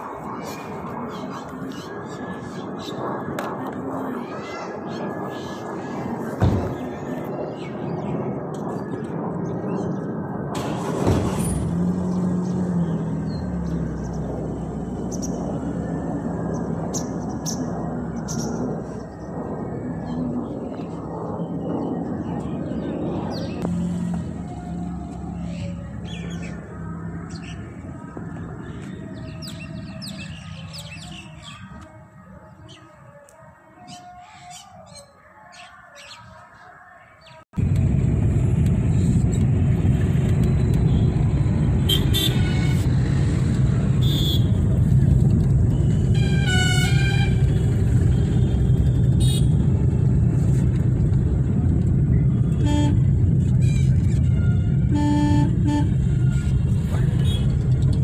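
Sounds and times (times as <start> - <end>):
birds chirping: 12.0 - 33.2
car engine hum: 37.6 - 58.0
car horn toots: 41.9 - 42.9, 44.0 - 44.6, 46.1 - 47.5, 52.5 - 53.3, 54.3 - 56.2
high-pitched horn beep: 54.4 - 56.5.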